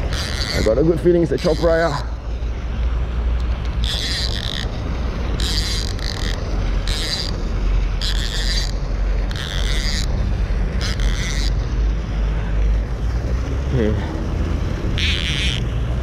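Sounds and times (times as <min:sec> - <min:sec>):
fishing reel whirring: 0:00.0 - 0:02.2, 0:03.5 - 0:11.8, 0:14.9 - 0:15.7.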